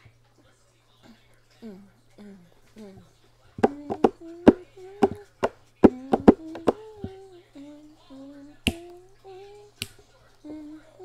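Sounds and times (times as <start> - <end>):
soft wordless humming tune: 0.0 - 11.0.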